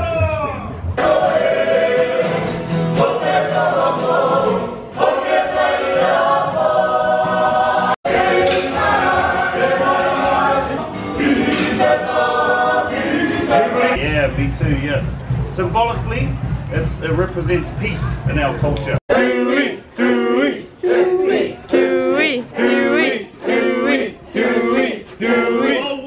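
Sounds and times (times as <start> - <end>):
group singing in chorus: 1.0 - 14.0, 19.0 - 26.0.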